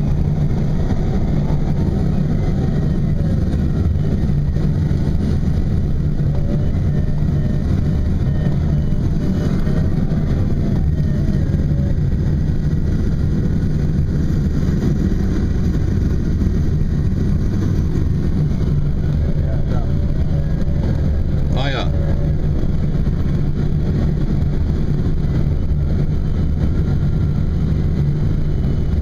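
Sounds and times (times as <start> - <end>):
glider cockpit rumble: 0.0 - 29.0.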